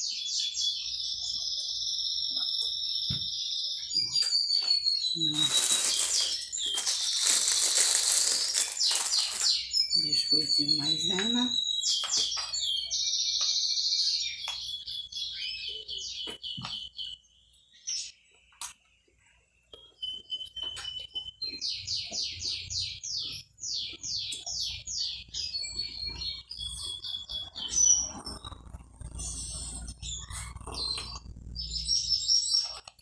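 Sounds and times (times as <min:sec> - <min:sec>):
small bird trilling: 0:04.0 - 0:16.9.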